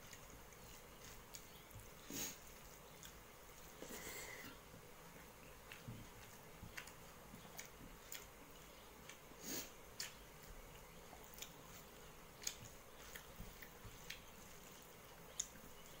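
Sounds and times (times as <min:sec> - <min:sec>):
fingers mixing food on steel plate: 0:00.0 - 0:03.8, 0:09.9 - 0:16.0
chewing: 0:00.0 - 0:16.0.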